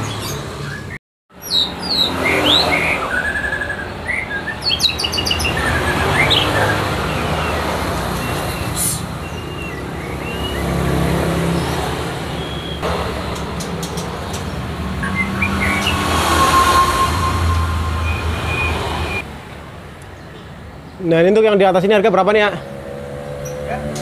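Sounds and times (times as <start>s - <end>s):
bird singing whistles and trills: 0.0s - 10.8s, 12.4s - 12.8s, 15.0s - 19.2s
low rumble of road traffic: 0.0s - 24.0s.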